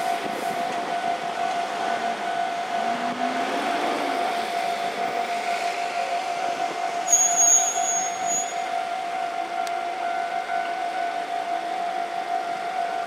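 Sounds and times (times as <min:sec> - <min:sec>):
diesel train passing over rails: 0:00.0 - 0:13.0
level-crossing warning bell ringing: 0:00.0 - 0:13.0
brief high-pitched squeal: 0:07.0 - 0:08.7.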